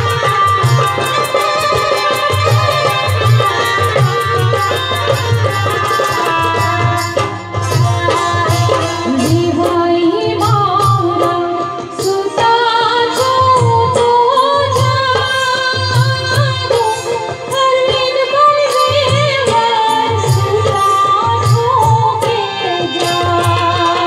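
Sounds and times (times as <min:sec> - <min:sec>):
keyboard: 0:00.0 - 0:24.0
tabla and dholak rhythm: 0:00.0 - 0:24.0
violin: 0:00.0 - 0:24.0
woman singing: 0:08.0 - 0:24.0.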